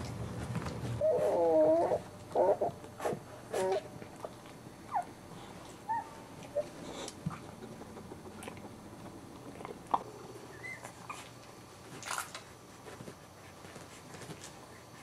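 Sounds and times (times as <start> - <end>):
puppies squeaking: 1.0 - 2.8, 5.9 - 8.3, 10.5 - 11.2.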